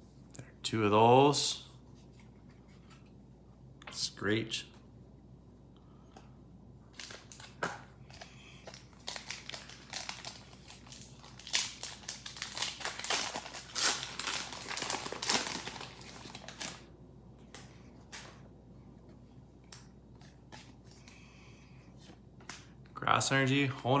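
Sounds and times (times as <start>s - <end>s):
foil wrapper crinkling and tearing: 6.9s - 16.9s.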